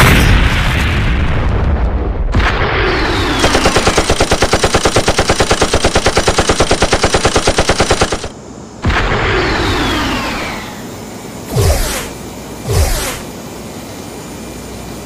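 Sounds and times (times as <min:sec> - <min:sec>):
machine-gun fire: 0:02.4 - 0:10.7, 0:11.5 - 0:13.3
short falling whine: 0:08.9 - 0:14.4.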